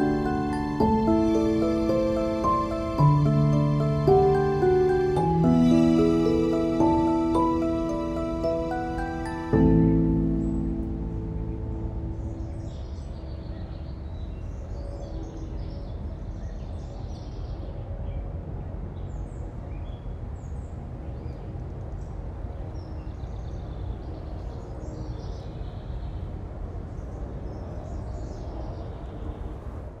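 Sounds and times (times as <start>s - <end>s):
steady low rumble: 0.0s - 14.7s
birds chirping: 0.0s - 17.6s.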